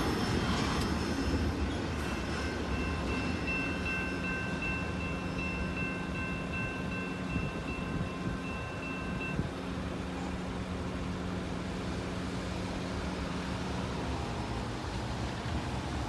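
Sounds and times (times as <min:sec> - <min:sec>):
steady traffic: 0:00.0 - 0:16.0
crossing warning bell ringing: 0:01.6 - 0:10.1.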